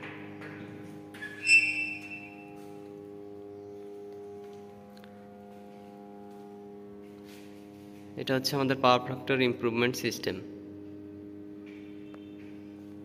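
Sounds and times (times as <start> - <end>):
steady electrical hum: 0.0 - 13.0
high metallic ring: 1.1 - 3.0.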